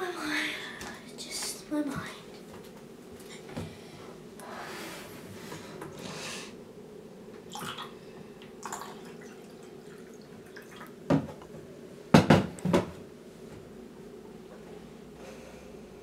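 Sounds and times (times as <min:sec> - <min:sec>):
electric kettle clunks: 0:11.1 - 0:11.4.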